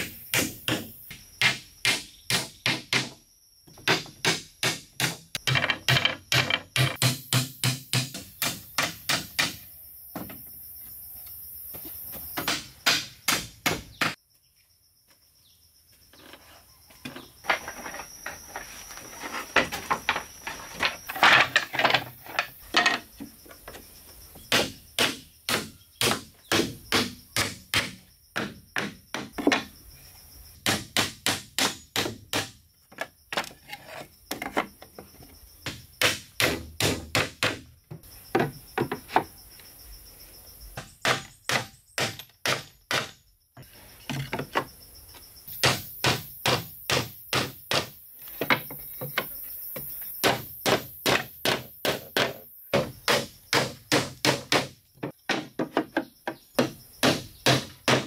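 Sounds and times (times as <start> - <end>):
hammer nailing floorboards: 50.2 - 58.0.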